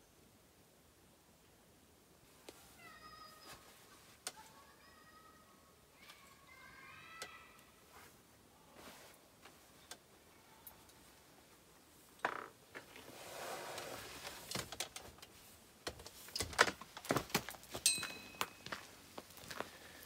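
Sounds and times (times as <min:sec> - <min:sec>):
clothing rustling: 0:07.8 - 0:10.0, 0:10.8 - 0:20.0
metallic ring: 0:17.8 - 0:18.8.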